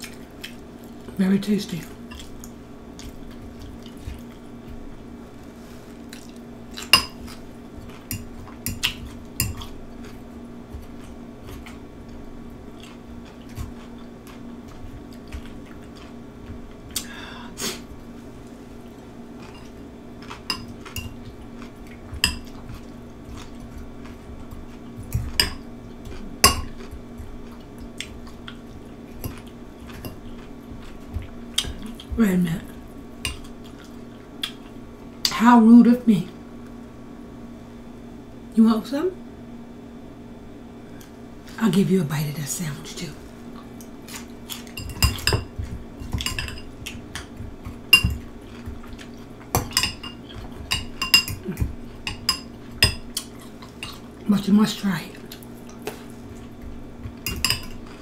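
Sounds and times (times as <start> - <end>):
fork clinking against glass bowl: 49.7 - 51.4, 57.3 - 57.9.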